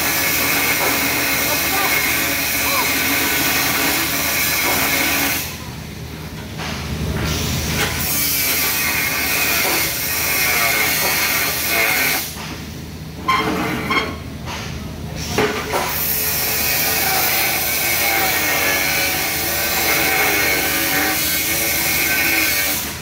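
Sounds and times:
welding torch hissing: 0.0s - 5.5s, 8.0s - 12.4s, 15.9s - 23.0s.

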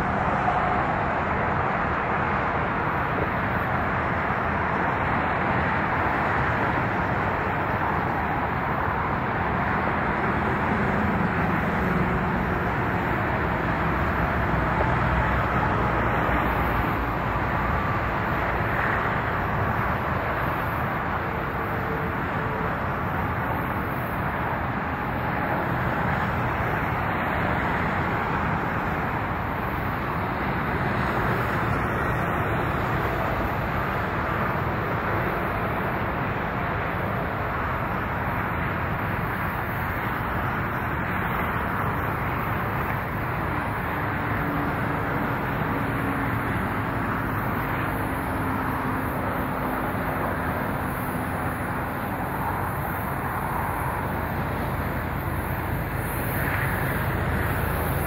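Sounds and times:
vehicle noise: 0.0s - 58.0s.

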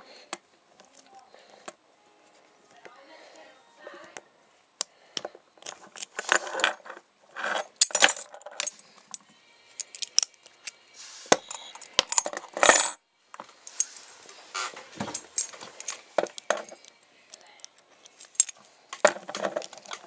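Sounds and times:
padlocks and metal tools clinking: 5.6s - 13.0s, 15.0s - 20.0s.

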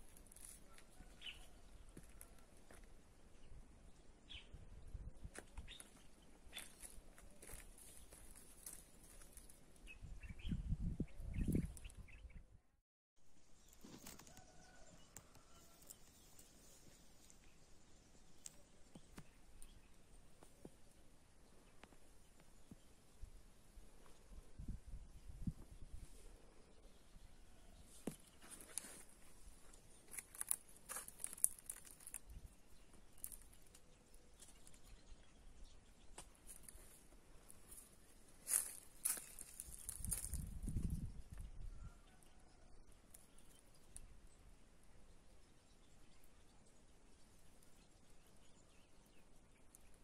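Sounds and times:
dry leaves crackling underfoot: 0.0s - 2.4s, 5.8s - 9.6s, 28.3s - 34.8s, 36.5s - 40.7s
wind rumbling on microphone: 9.8s - 12.6s, 23.2s - 26.4s, 39.4s - 42.1s
faint bird chirps: 32.3s - 50.0s.

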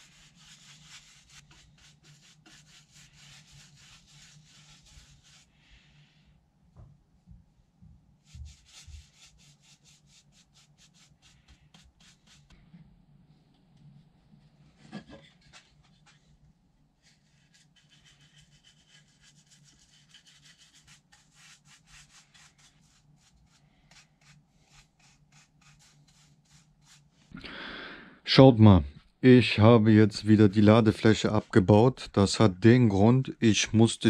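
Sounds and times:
paintbrush strokes on wood: 0.0s - 5.8s, 8.2s - 12.6s, 17.0s - 27.3s, 30.2s - 33.1s.

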